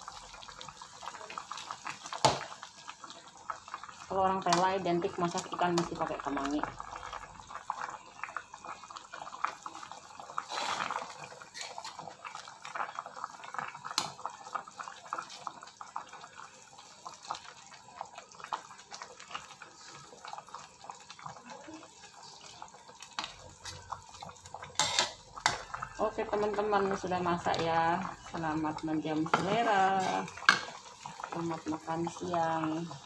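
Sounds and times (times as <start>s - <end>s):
soup bubbling in a wok: 0.0s - 33.0s.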